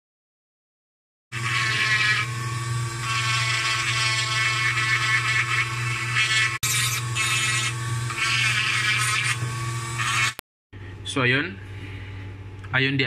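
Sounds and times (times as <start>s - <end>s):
rotary tool sanding wood: 1.4s - 2.4s, 3.0s - 10.4s.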